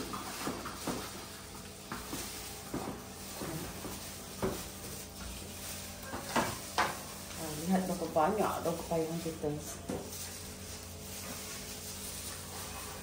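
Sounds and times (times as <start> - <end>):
kitchen objects knocking and clattering: 6.0 - 7.3.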